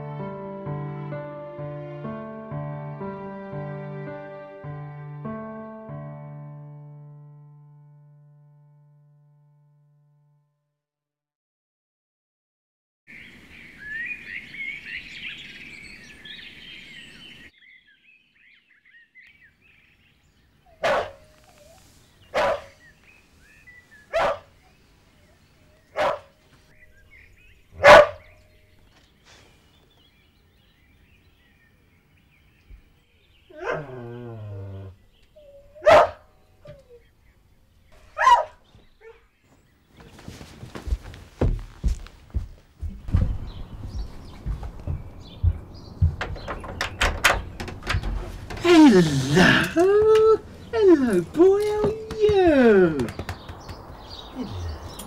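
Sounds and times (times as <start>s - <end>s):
birdsong: 13.1s - 55.0s
dog barking: 20.7s - 21.6s, 22.3s - 22.8s, 24.1s - 24.7s, 25.9s - 26.4s, 27.8s - 28.3s, 33.6s - 34.0s, 35.8s - 36.3s, 38.1s - 39.2s
dog whining: 20.7s - 22.8s, 33.5s - 37.0s, 48.6s - 53.1s.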